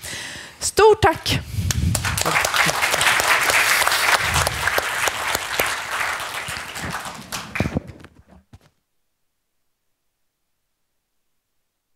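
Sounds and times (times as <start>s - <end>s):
audience applauding: 1.7s - 8.2s.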